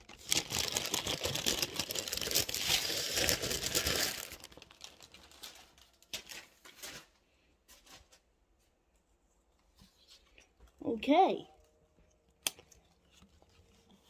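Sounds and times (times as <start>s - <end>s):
packaging crinkling: 0.0s - 7.2s.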